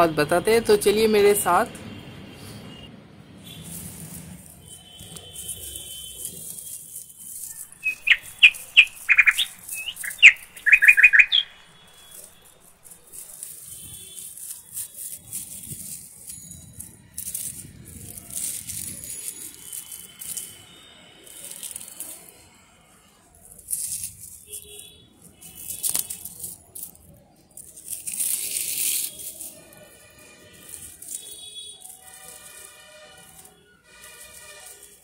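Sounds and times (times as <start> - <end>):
leaves rustling and crackling: 3.4 - 35.0
birds chirping: 7.3 - 13.2.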